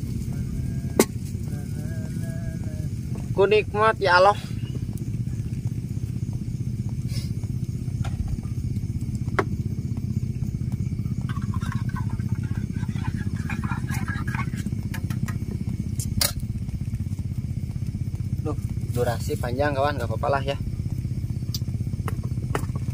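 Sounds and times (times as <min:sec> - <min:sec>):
small engine droning: 0:00.0 - 0:22.9.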